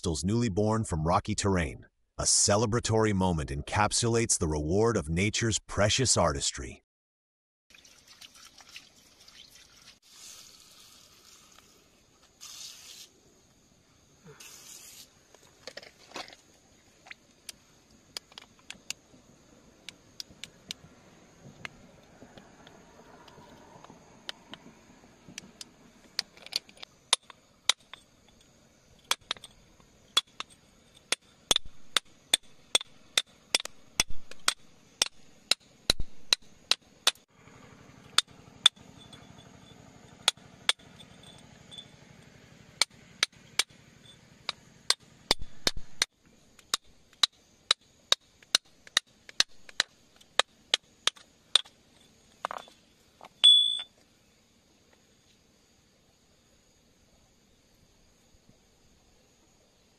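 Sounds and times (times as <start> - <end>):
metal chisel chipping rock: 30.2 - 35.6.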